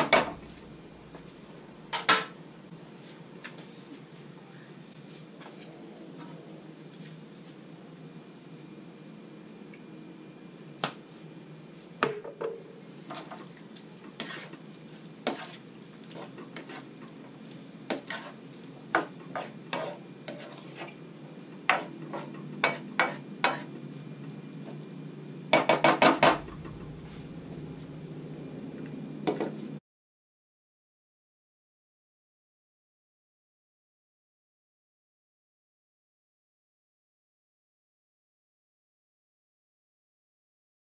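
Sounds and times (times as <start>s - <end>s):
spatula scraping vegetables in wok: 13.0s - 21.0s, 21.6s - 23.8s.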